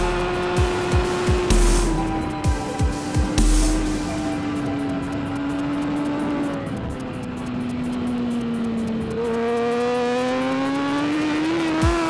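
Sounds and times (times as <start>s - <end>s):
motorcycle engine revving: 0.0s - 12.0s.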